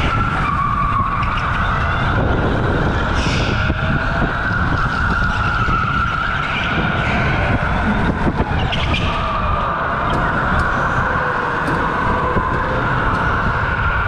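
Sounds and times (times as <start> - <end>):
electric go-kart motor whining: 0.0 - 14.0
rumble of ride vibration: 0.0 - 14.0.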